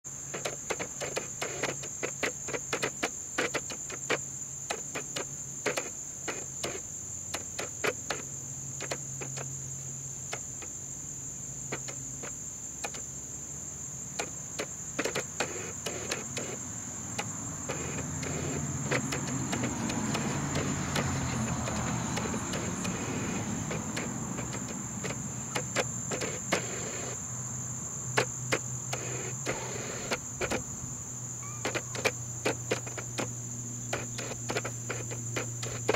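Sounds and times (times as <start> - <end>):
camera dial clicks: 31.6 - 33.3.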